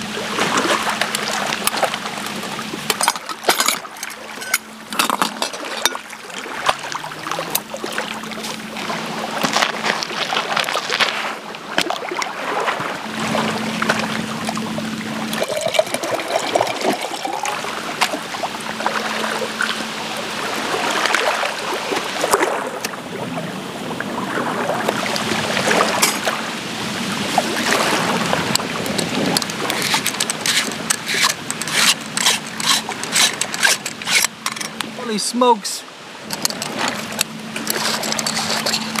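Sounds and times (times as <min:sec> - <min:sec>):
small waves lapping on pebbles: 0:00.0 - 0:39.0
camp gear clinking and scraping: 0:01.0 - 0:08.8, 0:09.4 - 0:11.4, 0:25.8 - 0:26.3, 0:27.8 - 0:35.1, 0:36.2 - 0:39.0.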